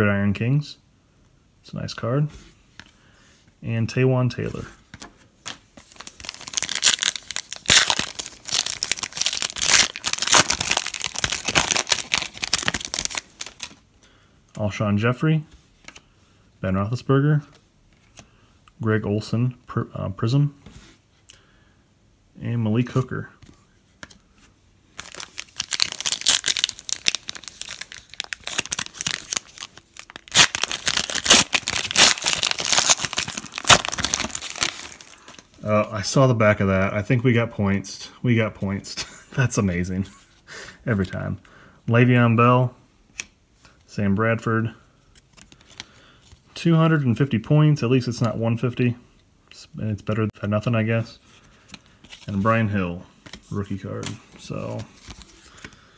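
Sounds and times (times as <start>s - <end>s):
foil wrapper crinkling: 5.8s - 13.8s, 25.0s - 35.5s.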